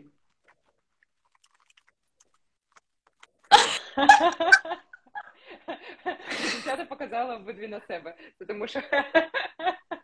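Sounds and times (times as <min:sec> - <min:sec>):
woman laughing: 0:03.5 - 0:06.8.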